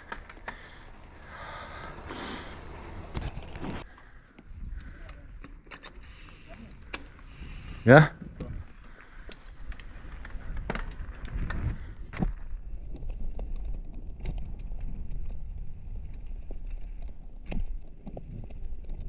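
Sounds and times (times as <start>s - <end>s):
wind and tyres rumbling on trail: 0.0s - 19.0s.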